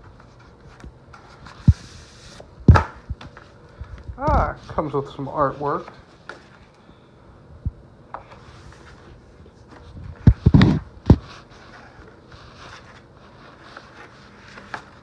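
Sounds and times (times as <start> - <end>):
paper rustling: 8.2 - 15.0.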